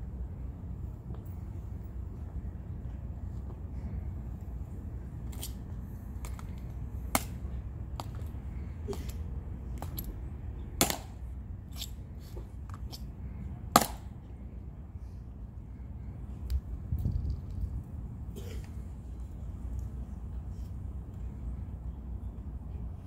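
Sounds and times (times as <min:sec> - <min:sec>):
wind rumble on microphone: 0:15.6 - 0:23.0.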